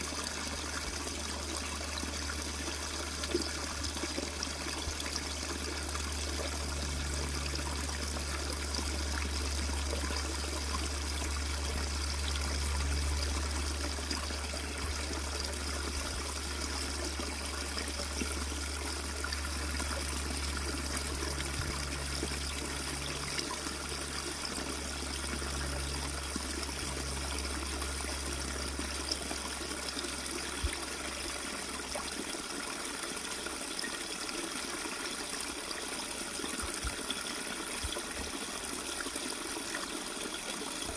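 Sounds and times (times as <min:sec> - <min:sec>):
stream trickling over rocks: 0:00.0 - 0:40.9
low rumble: 0:04.8 - 0:31.2.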